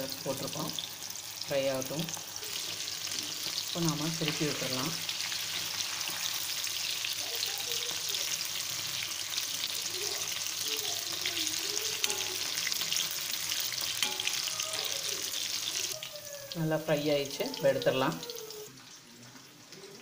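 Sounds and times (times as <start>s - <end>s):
fish deep-frying in oil: 0.0s - 20.0s
metal skimmer stirring in oil: 12.0s - 14.8s.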